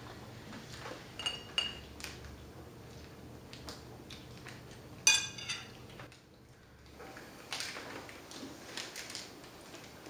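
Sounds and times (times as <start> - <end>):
china clinking: 1.2 - 1.8, 5.1 - 5.8
tableware taps and clicks: 1.2 - 1.9, 5.1 - 5.8.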